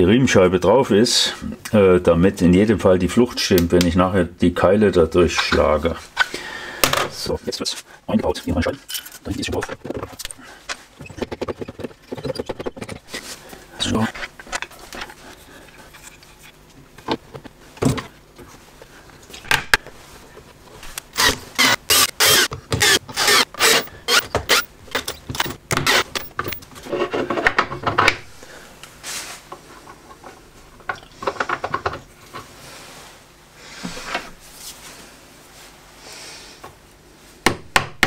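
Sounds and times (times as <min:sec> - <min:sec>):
cordless drill driving screws: 0:21.1 - 0:26.6
handling clicks and knocks: 0:24.3 - 0:26.7.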